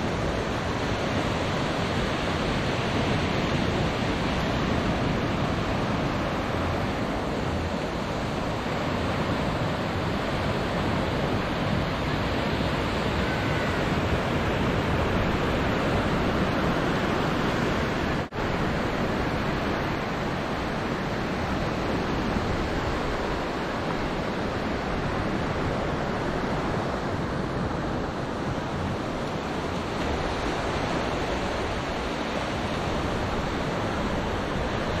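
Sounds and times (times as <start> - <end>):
waves washing on a beach: 0.0 - 35.0
wind on microphone: 0.0 - 35.0.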